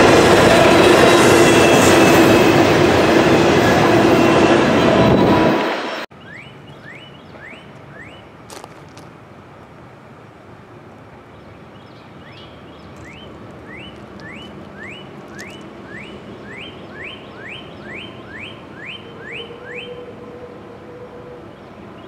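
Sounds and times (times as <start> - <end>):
low background noise: 6.1 - 22.0
bird whistling rising notes: 6.2 - 8.2, 13.0 - 21.6.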